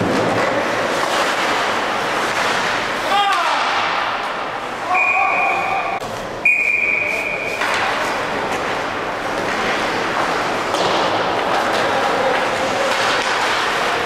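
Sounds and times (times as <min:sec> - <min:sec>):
arena crowd hum: 0:00.0 - 0:14.0
referee's whistle blasts: 0:04.9 - 0:07.6.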